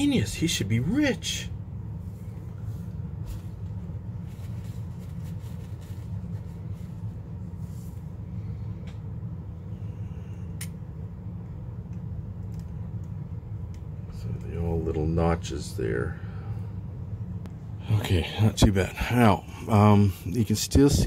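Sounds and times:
low background hum: 0.0s - 21.0s
tissue paper rustling: 2.7s - 8.0s.

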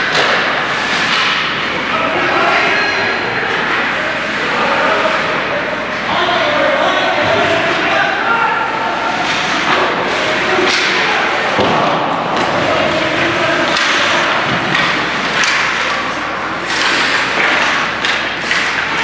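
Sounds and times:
skates scraping ice: 0.0s - 1.7s, 8.7s - 19.0s.

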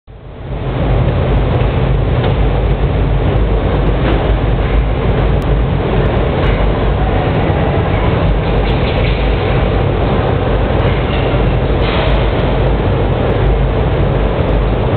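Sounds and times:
machinery hum and rumble: 0.1s - 14.9s.

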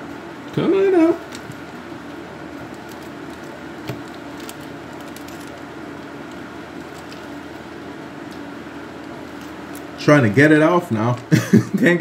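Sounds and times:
steady mechanical hum: 0.0s - 12.0s
piping bag handling clicks: 2.6s - 7.6s.

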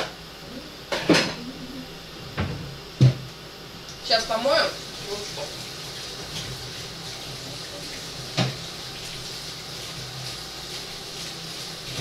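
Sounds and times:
tap water running into sink: 4.8s - 12.0s.

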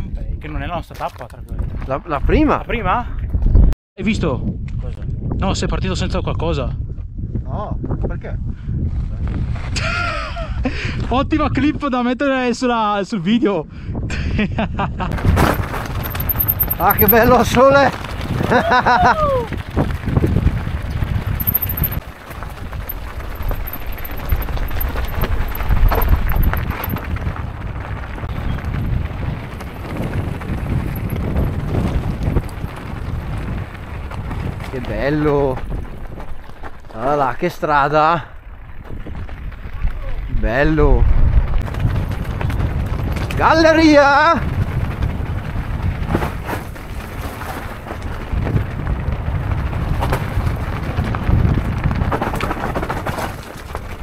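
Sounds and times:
wind buffeting microphone: 0.0s - 12.5s, 13.6s - 54.0s
bike rattling: 15.2s - 37.6s, 41.4s - 54.0s
bike tyres crunching: 15.2s - 37.7s, 41.3s - 54.0s.

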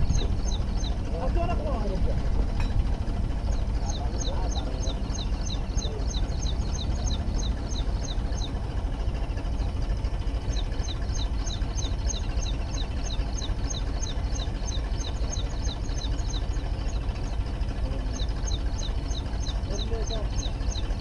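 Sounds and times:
diesel engine running under load: 0.0s - 21.0s
high falling chirp: 3.3s - 8.6s.

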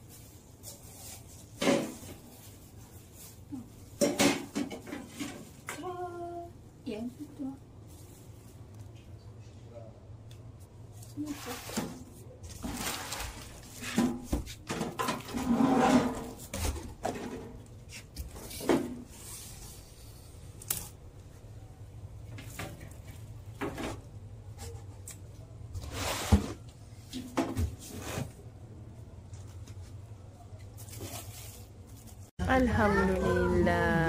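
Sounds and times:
plastic wrapping rustling: 0.0s - 4.0s, 10.9s - 17.2s, 29.2s - 32.3s.

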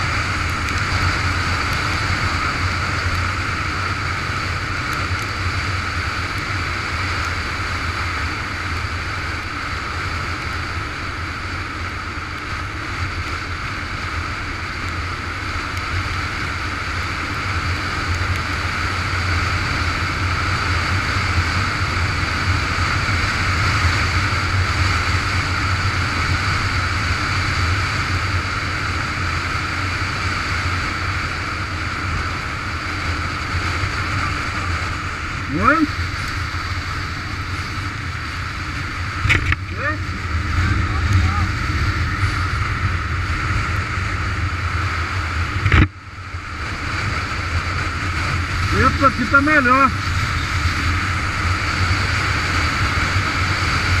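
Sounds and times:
motorcycle engine drone: 0.0s - 54.0s
tyres hissing on wet asphalt: 0.0s - 54.0s
wind rush: 13.0s - 54.0s.

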